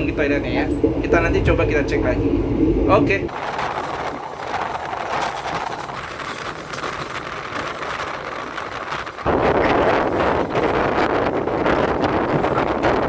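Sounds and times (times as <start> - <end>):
train wheels on rail: 3.3 - 13.0.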